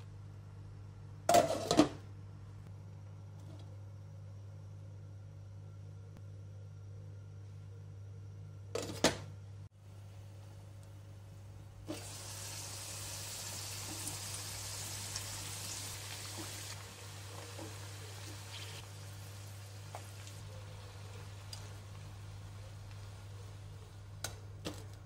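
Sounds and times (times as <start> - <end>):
potatoes sizzling in hot oil: 11.9 - 23.6.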